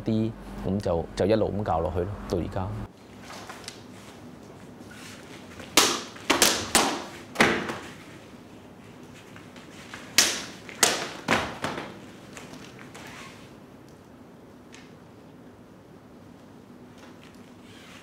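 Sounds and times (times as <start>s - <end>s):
sword thwacks cutting mats: 5.7s - 7.8s, 10.1s - 11.9s.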